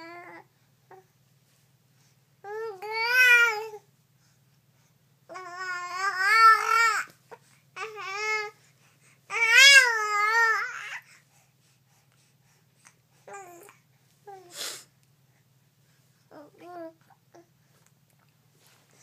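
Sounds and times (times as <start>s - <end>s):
baby breathy huff: 14.3s - 14.9s.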